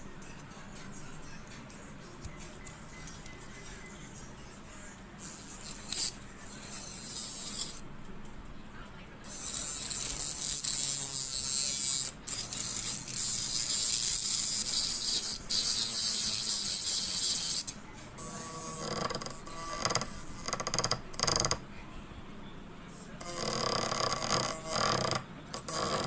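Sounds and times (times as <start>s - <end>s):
grinder grinding metal: 5.2s - 7.8s, 9.3s - 19.7s.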